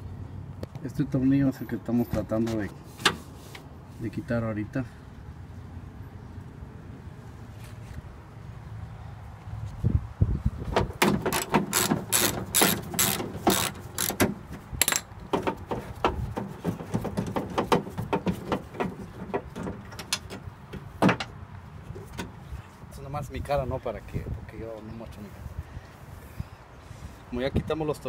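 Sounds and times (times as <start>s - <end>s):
socket wrench ratchet clicking: 11.3s - 14.2s, 14.8s - 15.1s.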